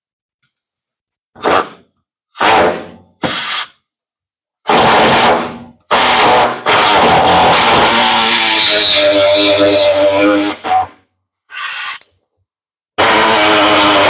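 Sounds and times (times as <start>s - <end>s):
pneumatic jigsaw cutting sheet steel: 1.4s - 1.8s, 2.4s - 3.8s, 4.6s - 10.9s, 13.0s - 14.0s.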